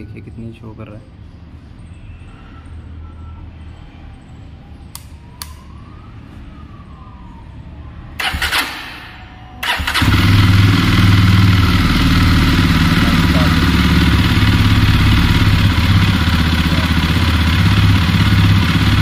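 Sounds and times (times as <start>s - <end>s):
motorcycle engine running: 9.6s - 19.0s.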